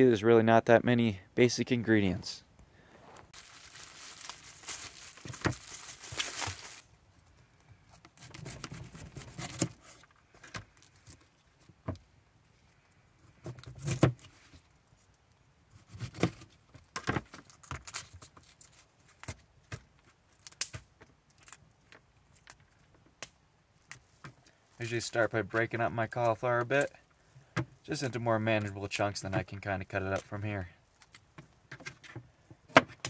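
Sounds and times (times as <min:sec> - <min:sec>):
plastic bag rustling and tearing: 0:03.3 - 0:06.9, 0:08.2 - 0:10.0.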